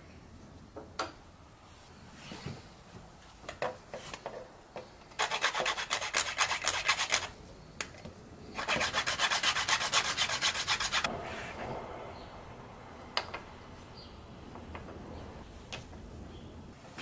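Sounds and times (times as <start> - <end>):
hand sanding strokes: 5.2 - 7.4, 8.6 - 11.6.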